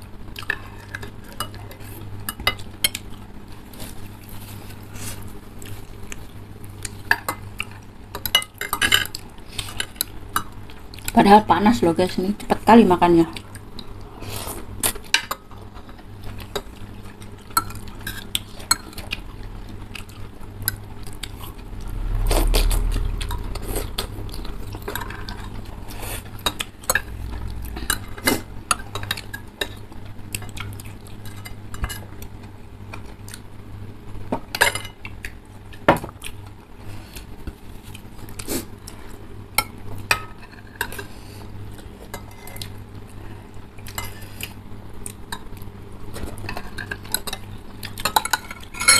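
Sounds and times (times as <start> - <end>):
cutlery clinking against ceramic bowls: 46.4 - 48.9.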